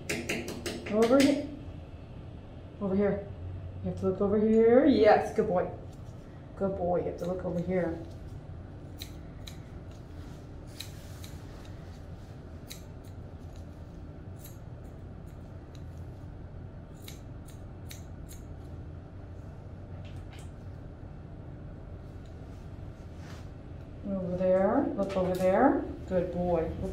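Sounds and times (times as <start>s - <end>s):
low steady background hum: 0.0s - 26.9s
shears snipping hair: 7.0s - 16.2s, 16.9s - 18.7s.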